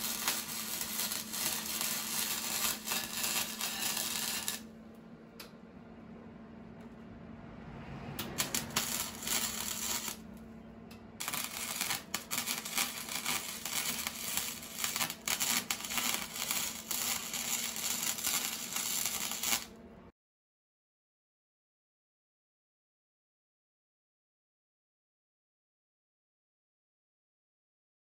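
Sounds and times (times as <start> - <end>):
welding arc crackling: 0.0 - 4.7, 8.2 - 10.3, 11.2 - 19.8.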